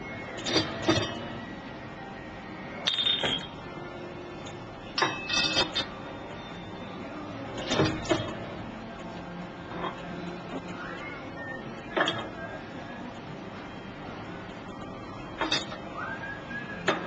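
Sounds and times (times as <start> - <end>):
steady background hum: 0.0 - 17.0
bottle capper clacking: 2.8 - 3.5
glass bottles clinking: 2.8 - 3.6.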